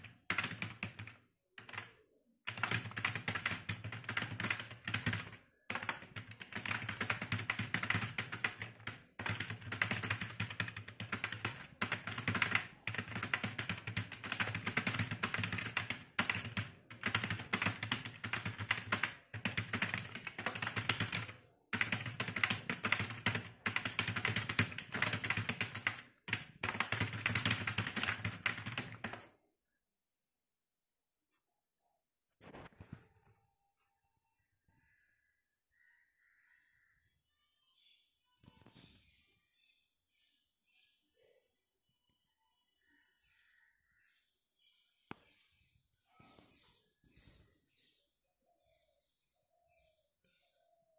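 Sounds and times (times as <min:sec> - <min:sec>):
fast typing on keyboard: 0:00.0 - 0:29.3.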